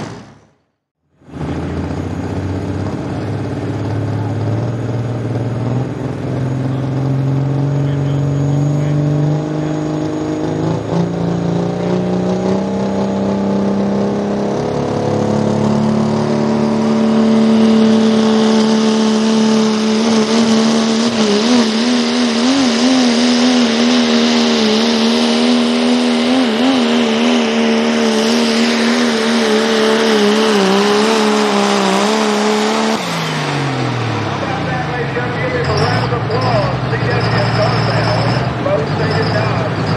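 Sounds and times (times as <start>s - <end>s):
diesel truck engine at full throttle: 0.0s - 39.9s.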